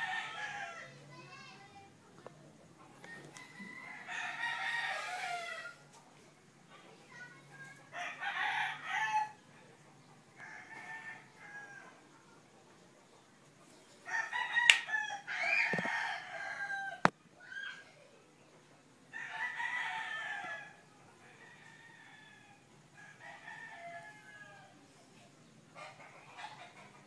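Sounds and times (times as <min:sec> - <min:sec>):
rooster crowing: 0:00.0 - 0:01.0, 0:03.0 - 0:05.9, 0:08.0 - 0:09.4, 0:10.4 - 0:12.0, 0:14.0 - 0:17.1, 0:19.1 - 0:24.9.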